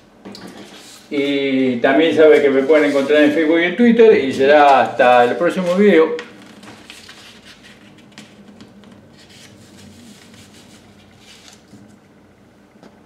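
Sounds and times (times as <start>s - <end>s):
low steady hum: 0.0s - 13.0s
paper rustling and tapping: 5.6s - 11.9s.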